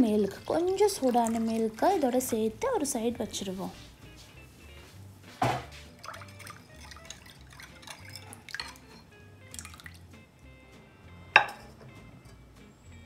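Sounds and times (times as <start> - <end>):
liquid splashing: 0.0 - 2.5, 5.9 - 10.1
plastic bowl set down: 5.4 - 5.8
spoon clinking in glass bowl: 6.2 - 9.9, 11.4 - 11.8.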